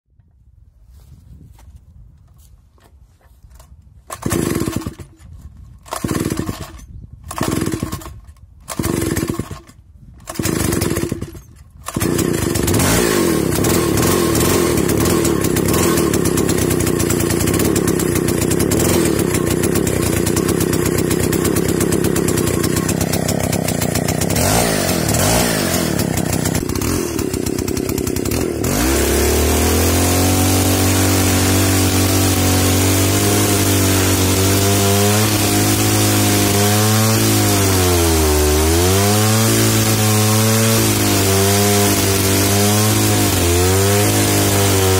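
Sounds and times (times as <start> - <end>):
chainsaw starting and running: 4.0 - 44.9
chainsaw cutting tree trunk: 4.1 - 44.9.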